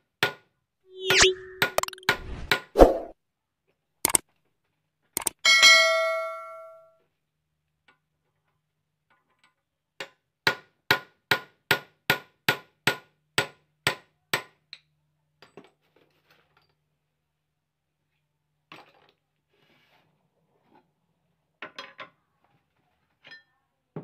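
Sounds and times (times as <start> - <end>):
hammer striking metal ringing: 5.5 - 6.8.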